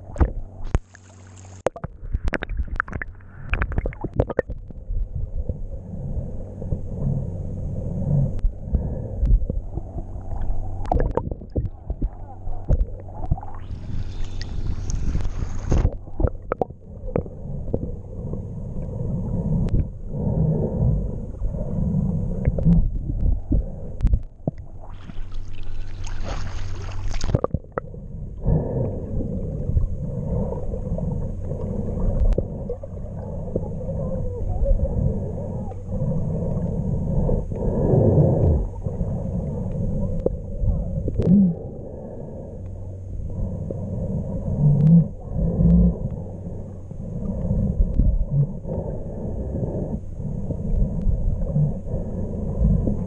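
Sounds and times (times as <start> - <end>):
underwater rumbling and gurgling: 0.0 - 53.0
splashing hiss at water surface: 24.9 - 27.3.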